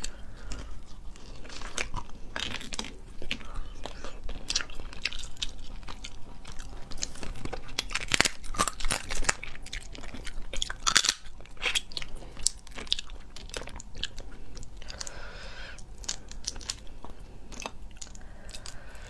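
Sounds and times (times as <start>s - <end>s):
chewing: 0.0s - 19.0s
teeth cracking crab shell: 1.5s - 15.2s.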